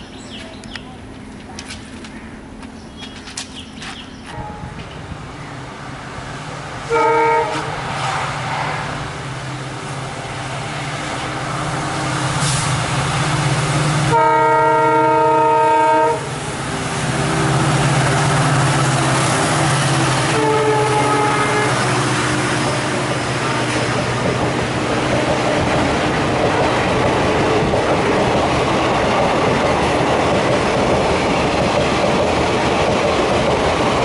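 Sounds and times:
diesel locomotive engine drone: 0.0 - 34.0
locomotive air horn blasts: 6.9 - 7.8, 14.1 - 16.4, 19.2 - 23.1.

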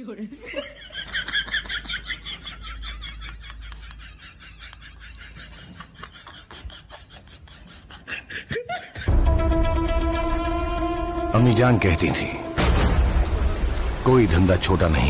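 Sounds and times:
snickering laughter: 0.5 - 9.2.

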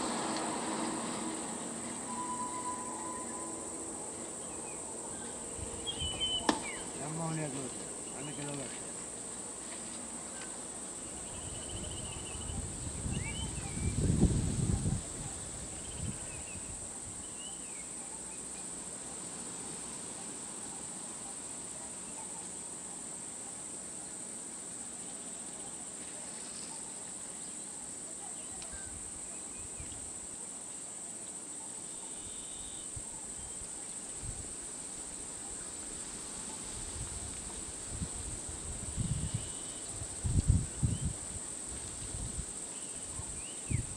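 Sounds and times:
high-pitched insect drone: 0.0 - 9.0
faint bird chirps: 4.4 - 7.0.

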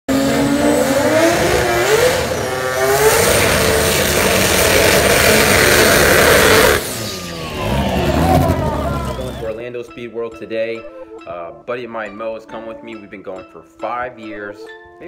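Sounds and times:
car engine revving high: 0.1 - 9.6.

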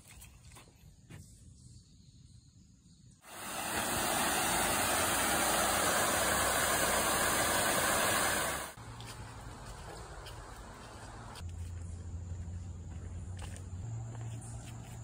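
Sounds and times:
waterfall rushing: 3.3 - 8.8.

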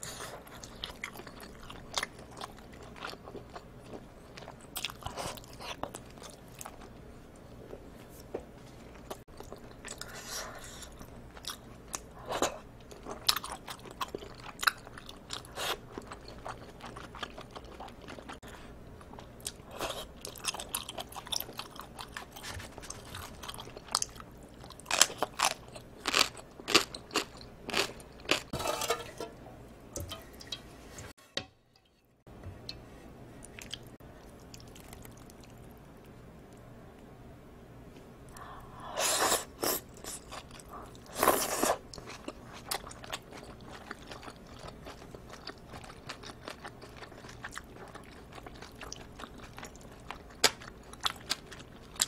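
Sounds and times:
chewing noodles: 8.9 - 28.6, 33.4 - 36.6, 39.2 - 52.0.

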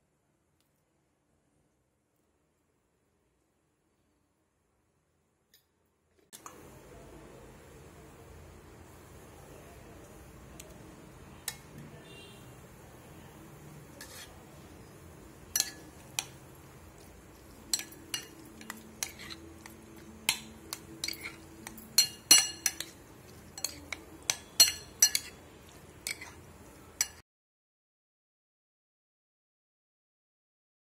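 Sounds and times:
spoon clinking and scraping bowl: 13.9 - 27.2.

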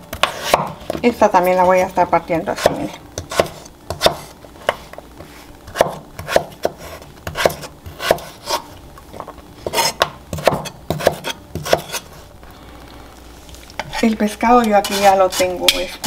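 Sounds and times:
knife scrape: 0.2 - 0.7, 3.3 - 8.7, 9.6 - 12.3, 14.8 - 16.0
knife cutting on wooden board: 5.7 - 8.7, 9.6 - 12.1.

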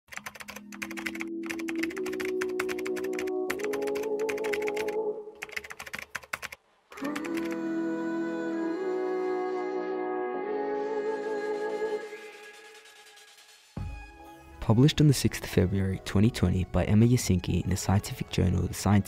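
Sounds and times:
keyboard typing clicks: 0.1 - 6.6
soft music with held notes: 7.0 - 12.4, 13.8 - 19.0.

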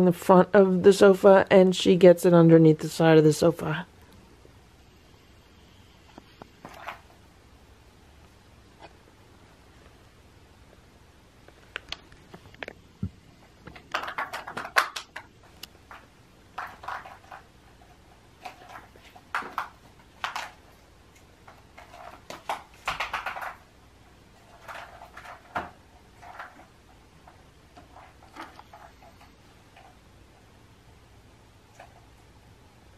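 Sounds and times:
plastic egg clattering on tile: 6.6 - 7.1, 13.5 - 20.8, 21.4 - 23.7, 24.4 - 30.0.

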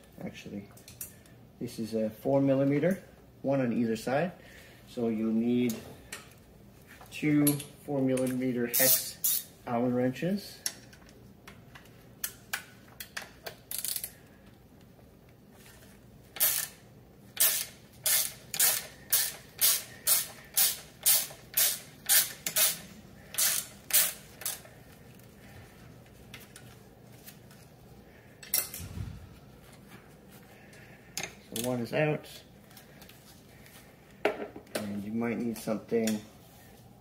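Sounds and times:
metallic rasps of wrench: 8.7 - 9.5, 16.4 - 16.8, 17.4 - 24.6.

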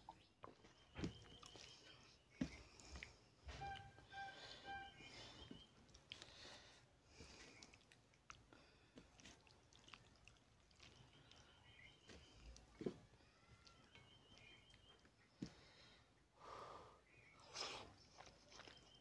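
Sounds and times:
fingers mixing rice on plate: 7.2 - 12.9.

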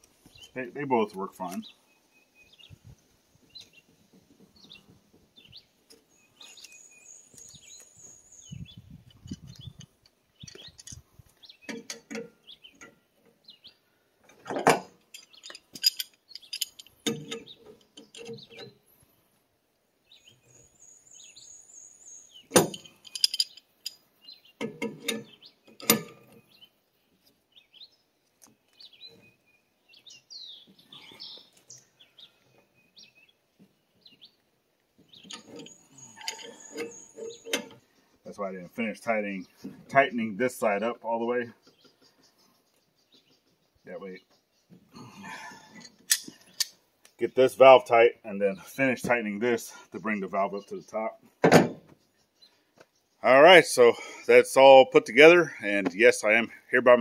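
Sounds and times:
small birds chirping: 0.0 - 57.0
pipe fittings and wrench clinking: 9.0 - 11.1, 11.7 - 13.0, 14.4 - 18.7, 22.5 - 24.0, 24.6 - 26.4, 35.2 - 37.9, 45.6 - 46.7.

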